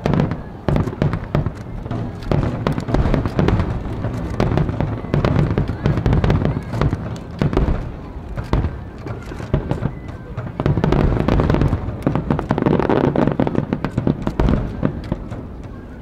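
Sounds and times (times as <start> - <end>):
fireworks crackling and banging: 0.0 - 16.0.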